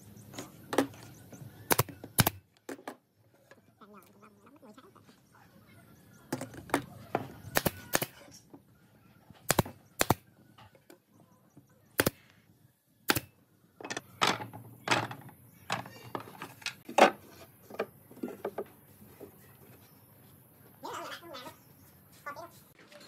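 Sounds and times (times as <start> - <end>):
wooden frames knocking: 13.8 - 18.8.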